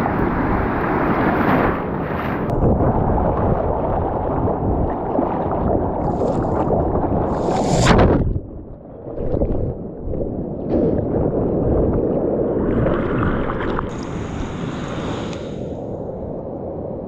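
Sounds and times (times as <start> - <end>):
water splashing against surfboard: 3.4 - 8.5, 9.1 - 15.6.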